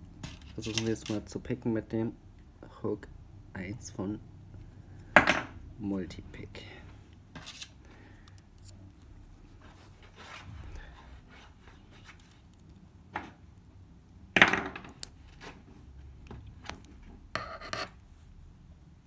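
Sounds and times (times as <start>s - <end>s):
hand handling noise: 7.1s - 13.8s.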